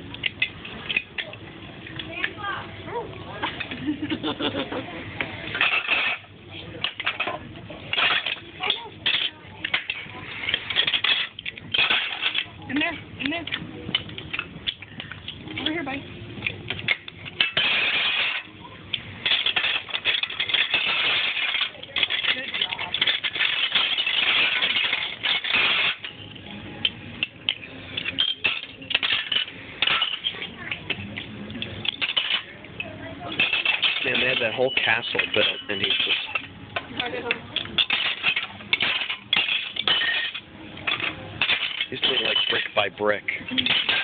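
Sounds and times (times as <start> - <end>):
plastic bricks clicking and clattering: 5.5 - 15.8, 16.4 - 32.5, 33.3 - 44.0.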